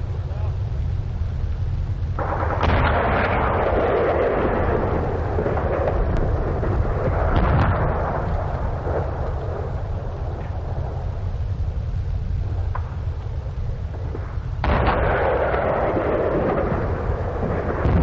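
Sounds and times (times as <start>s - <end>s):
rolling rumble of shellfire: 0.0s - 18.0s
sharp gunfire cracks: 2.2s - 10.9s, 13.9s - 18.0s
artillery blast: 2.2s - 11.3s, 13.9s - 18.0s.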